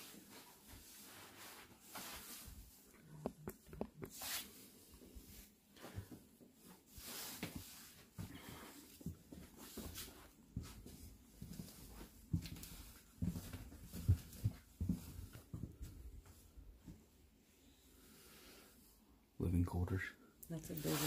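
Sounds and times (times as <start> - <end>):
faint footsteps on floor: 5.4 - 17.2
rustling handling noise: 20.6 - 21.0.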